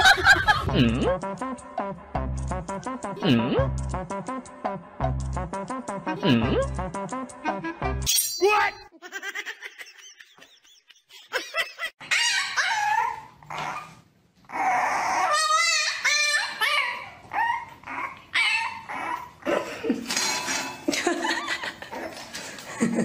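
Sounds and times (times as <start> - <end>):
dog yipping and whining: 12.0 - 19.5.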